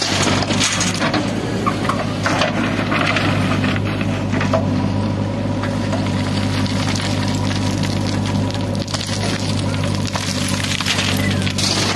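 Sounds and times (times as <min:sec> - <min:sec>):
diesel engine running under load: 0:00.0 - 0:11.9
bucket scraping stony soil: 0:06.4 - 0:11.9.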